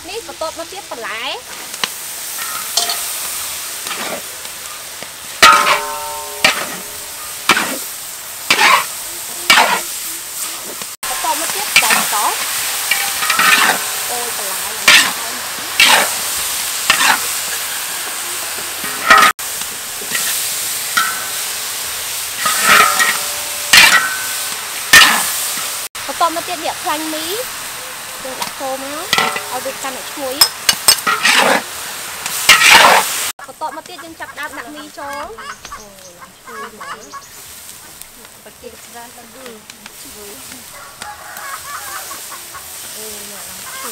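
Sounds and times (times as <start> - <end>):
food sizzling: 0.0 - 43.9
metal spatula scraping wok: 1.5 - 4.4, 5.4 - 25.9, 28.2 - 33.3.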